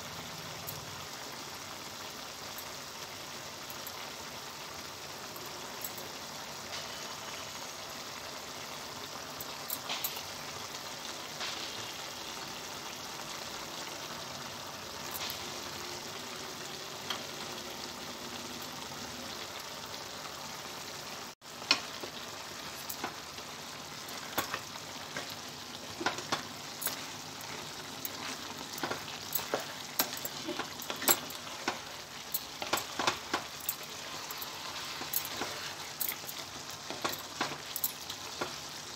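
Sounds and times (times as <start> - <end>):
curry sizzling and bubbling: 0.0 - 38.9
spatula stirring in a pan: 21.5 - 38.9.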